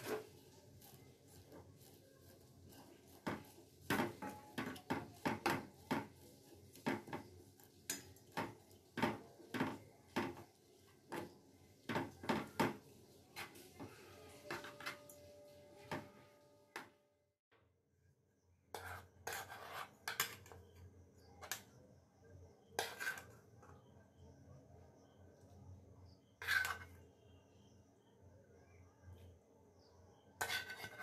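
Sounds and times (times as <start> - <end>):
metal spoon scraping metal pot: 18.7 - 20.8, 22.8 - 23.4, 26.3 - 27.0, 30.4 - 31.0.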